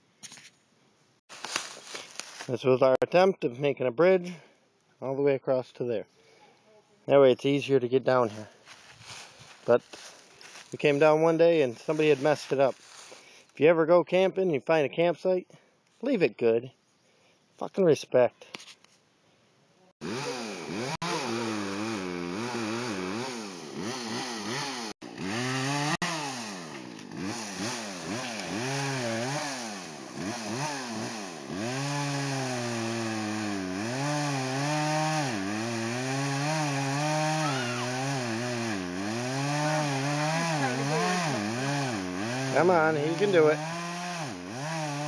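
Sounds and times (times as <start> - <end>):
chainsaw engine revving: 20.0 - 45.0.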